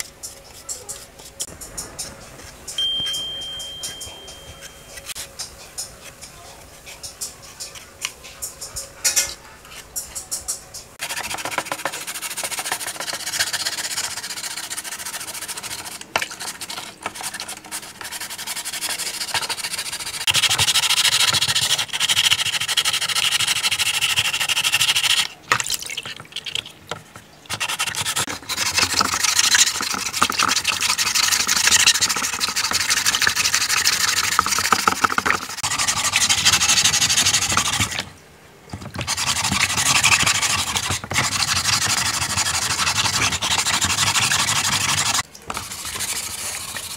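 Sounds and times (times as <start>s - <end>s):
sponge scrubbing in water: 11.0s - 25.3s, 27.5s - 38.1s, 38.8s - 46.9s.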